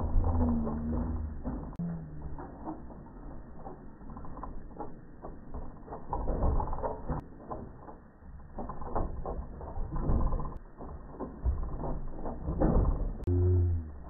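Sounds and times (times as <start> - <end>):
dog paws drumming on planks: 0.0 - 14.0.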